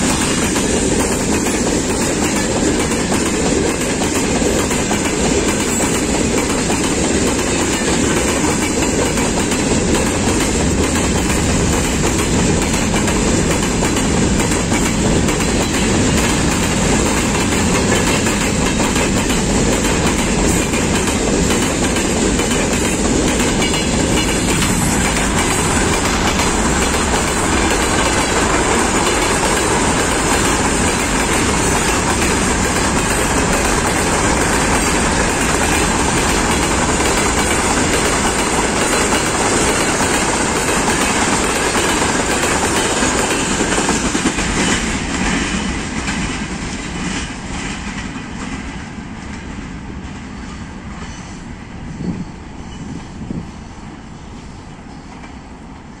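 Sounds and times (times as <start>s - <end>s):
train wheels rolling on rails: 0.0s - 56.0s.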